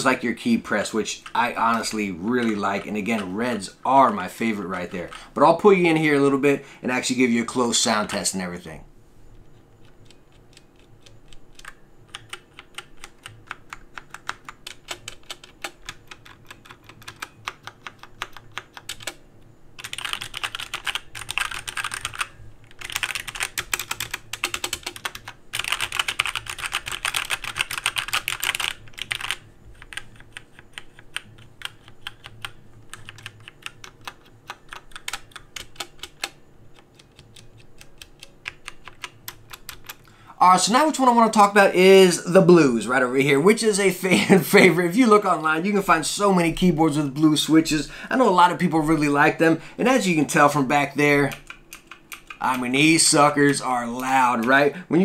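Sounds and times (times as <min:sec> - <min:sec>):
mechanical keyboard typing: 0:09.8 - 0:19.2, 0:19.8 - 0:40.1, 0:50.0 - 0:54.8.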